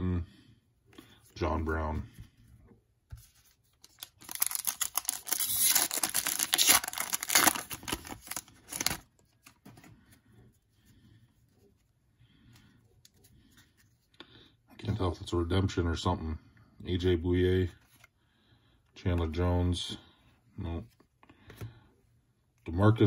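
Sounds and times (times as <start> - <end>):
faint rustles of cards: 0.3 - 15.1, 16.9 - 22.9
foil wrapper tearing and crinkling: 3.8 - 9.1.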